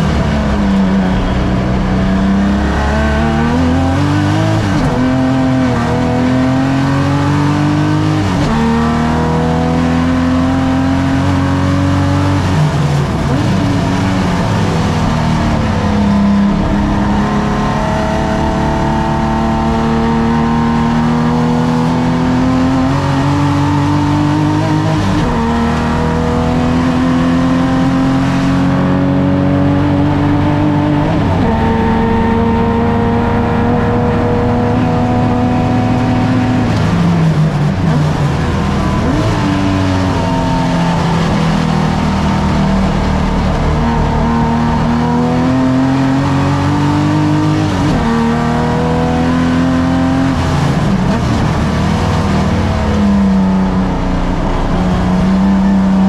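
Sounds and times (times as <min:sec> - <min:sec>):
racing car engine at full throttle: 0:00.0 - 0:56.0.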